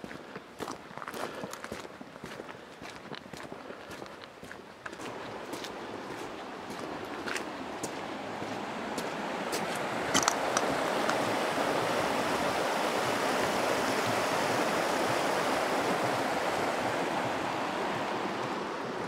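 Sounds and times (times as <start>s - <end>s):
stream rushing over stones: 4.9s - 19.0s.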